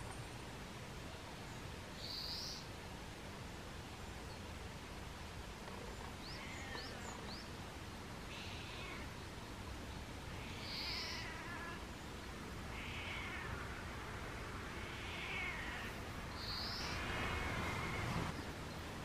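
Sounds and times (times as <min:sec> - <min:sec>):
cat yowling: 0:08.3 - 0:09.1, 0:10.4 - 0:11.9, 0:12.7 - 0:13.6, 0:14.8 - 0:16.0.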